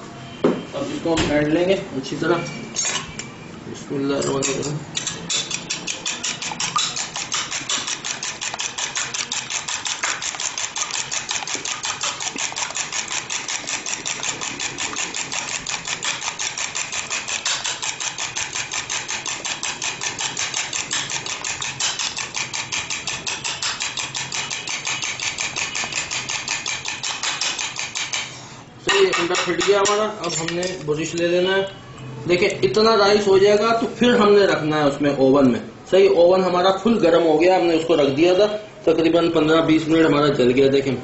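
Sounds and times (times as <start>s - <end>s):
fork beating egg in bowl: 4.2s - 31.3s.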